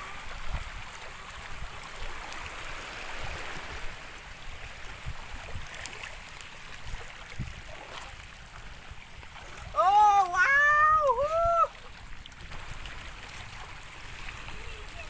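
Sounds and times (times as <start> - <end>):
shallow water sloshing and splashing: 0.0 - 15.0
water running off: 9.1 - 15.0.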